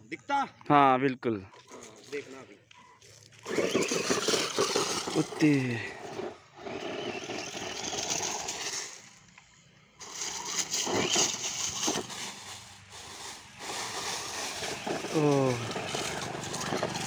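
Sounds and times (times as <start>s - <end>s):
toy truck tyres crunching leaves: 1.6s - 9.4s, 10.0s - 17.0s.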